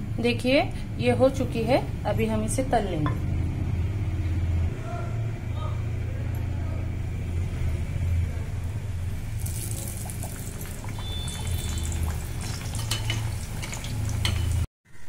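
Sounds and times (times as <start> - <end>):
dough deep-frying in oil: 7.6 - 14.7.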